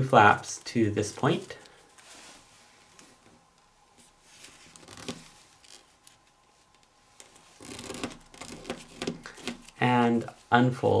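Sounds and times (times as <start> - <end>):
paper rustling and crinkling: 4.0 - 9.8.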